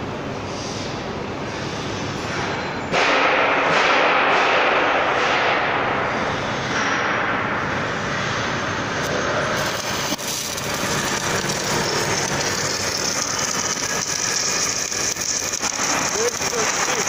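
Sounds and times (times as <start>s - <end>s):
welding machine loud hiss: 7.7s - 17.0s.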